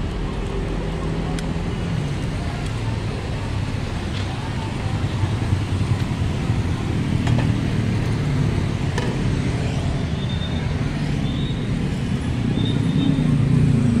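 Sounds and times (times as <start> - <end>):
road traffic rumble: 0.0 - 14.0.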